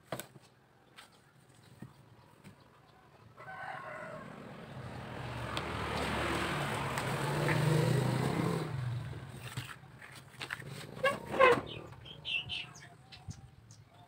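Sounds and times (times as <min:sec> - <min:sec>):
rooster crowing: 0:03.4 - 0:04.7.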